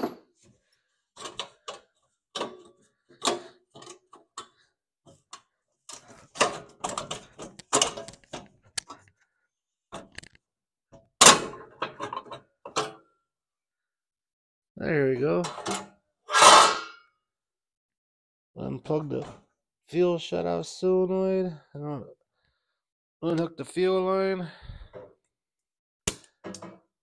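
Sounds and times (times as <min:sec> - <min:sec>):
metallic clicks and clunks: 0:01.2 - 0:09.1, 0:09.9 - 0:10.4, 0:11.0 - 0:13.0, 0:15.4 - 0:15.9.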